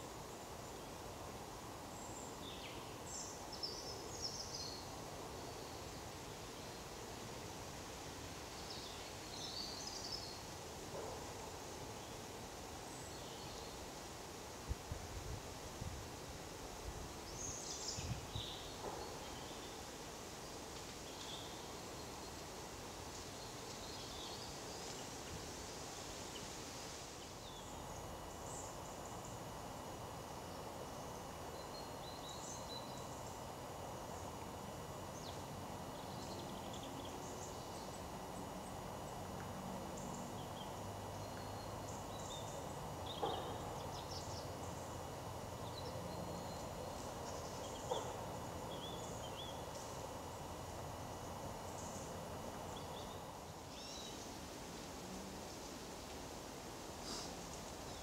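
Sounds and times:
steady background hiss: 0.0s - 58.0s
small birds chirping: 27.2s - 54.4s.

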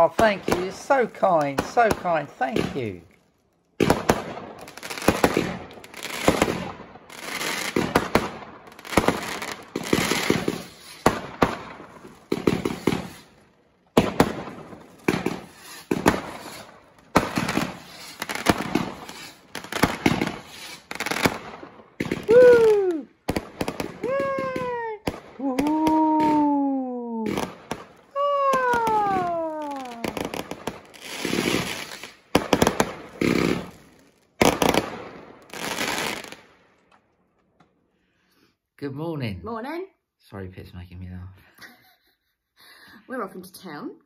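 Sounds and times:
fireworks bangs: 0.0s - 3.2s, 3.8s - 36.6s
fireworks crackle: 0.0s - 36.9s
falling wails: 22.3s - 23.1s, 24.0s - 27.3s, 28.2s - 30.3s.

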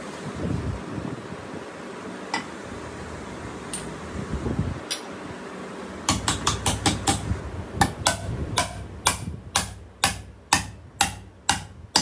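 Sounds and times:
hammer striking metal: 6.1s - 12.0s.

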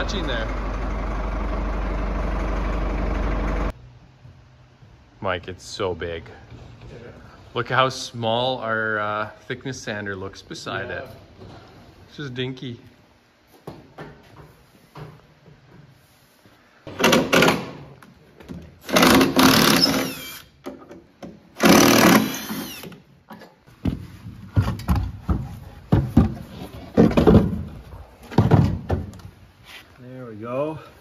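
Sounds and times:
cordless drill motor whine: 22.0s - 22.9s
irregular knocks and rattles: 23.8s - 29.3s.

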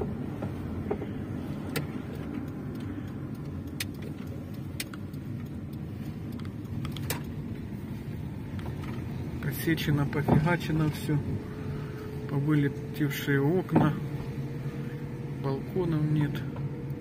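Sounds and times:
sharp clicks and rattles: 0.0s - 7.8s
car cabin engine and tyre rumble: 0.0s - 17.0s.

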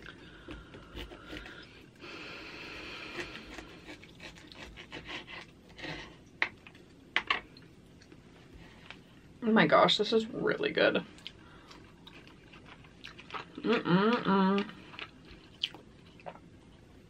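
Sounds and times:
plastic knife sawing meat: 3.0s - 6.1s.

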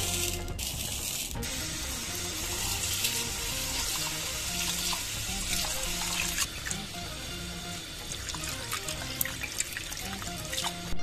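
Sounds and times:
background music: 0.0s - 11.0s
tap water running into bowl: 2.2s - 11.0s.

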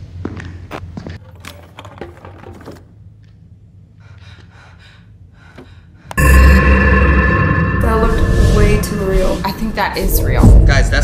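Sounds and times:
droning tones: 6.2s - 11.0s
music hit with deep rumble: 6.2s - 11.0s.

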